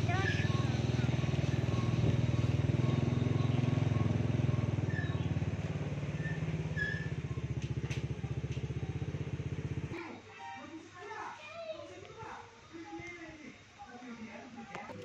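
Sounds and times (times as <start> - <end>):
motorcycle engine putter: 0.0 - 9.8.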